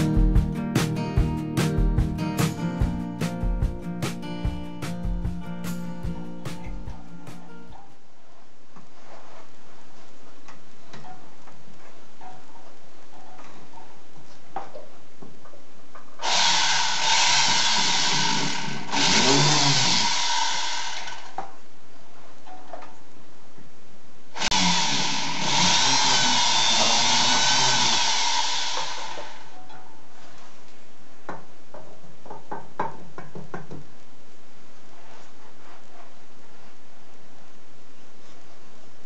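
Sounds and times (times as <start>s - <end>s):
rotary tool burr grinding metal: 16.2s - 21.0s, 24.4s - 29.4s.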